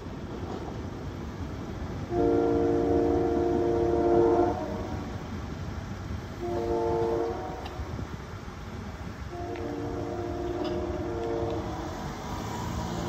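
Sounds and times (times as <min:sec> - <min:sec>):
train horn blasts: 0:02.1 - 0:05.2, 0:06.4 - 0:08.1, 0:09.3 - 0:12.0.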